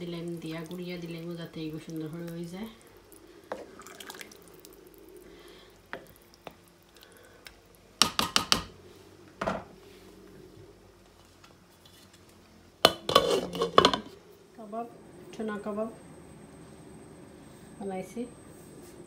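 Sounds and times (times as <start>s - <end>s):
wooden spoon stirring a pot: 0.0s - 4.8s
spoon knocking against pot: 8.0s - 8.7s.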